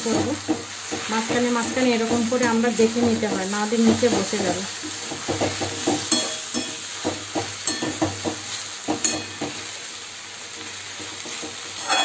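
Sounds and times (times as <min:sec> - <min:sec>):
greens sizzling in oil: 0:00.0 - 0:12.0
metal spatula scraping: 0:11.0 - 0:12.0.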